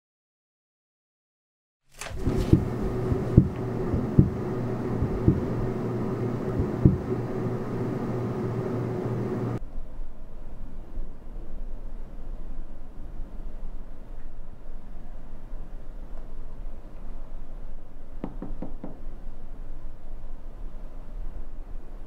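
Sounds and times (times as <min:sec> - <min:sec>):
fridge humming: 0:02.0 - 0:09.6
muffled low thumps: 0:02.2 - 0:09.6.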